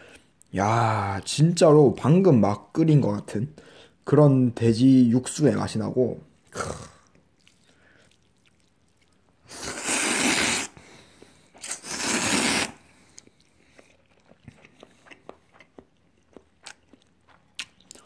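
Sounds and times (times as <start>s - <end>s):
quiet chewing: 6.4s - 9.4s, 12.9s - 18.0s
person slurping noodles: 6.5s - 8.2s, 9.4s - 10.8s, 11.6s - 12.9s.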